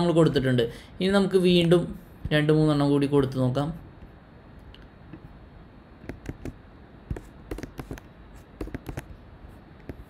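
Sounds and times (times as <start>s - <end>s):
keyboard and mouse clicking: 6.0s - 9.2s.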